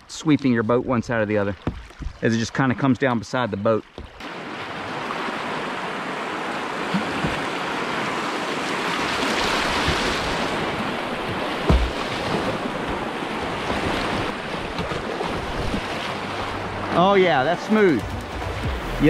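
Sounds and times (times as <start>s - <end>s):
whitewater rushing: 4.2s - 19.0s
low thump: 11.2s - 12.1s.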